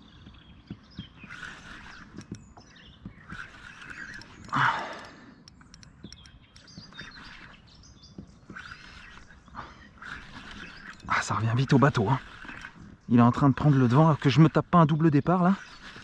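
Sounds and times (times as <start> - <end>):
small birds chirping: 0.0 - 16.0
faint clicks: 1.3 - 7.6.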